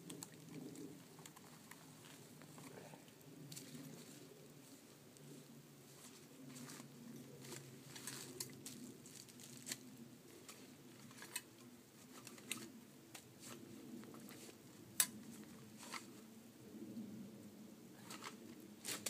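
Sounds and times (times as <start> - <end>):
rustling and crinkling packaging: 3.5 - 12.7.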